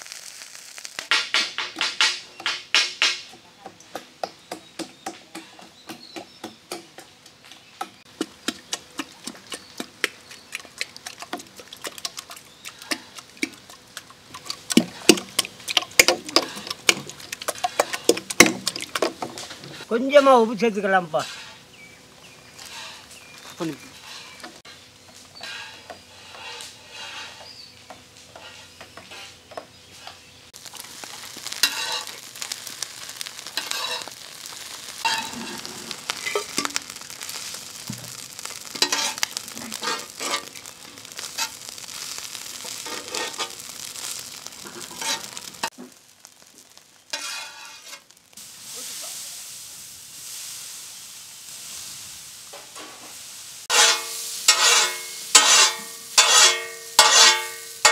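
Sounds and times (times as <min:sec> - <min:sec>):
meat sizzling on griddle: 0:00.0 - 0:03.4, 0:07.6 - 0:57.9
metal spatula scraping griddle: 0:16.2 - 0:21.9, 0:22.5 - 0:30.3, 0:31.0 - 0:37.6, 0:38.5 - 0:45.9, 0:47.0 - 0:48.1, 0:53.7 - 0:57.9.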